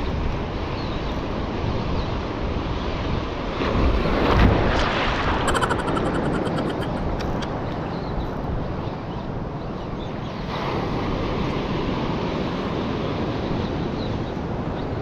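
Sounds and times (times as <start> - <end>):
wind buffeting microphone: 0.0 - 9.8
surf washing on shore: 0.1 - 7.8, 10.3 - 15.0
rapid clicks: 5.5 - 7.5.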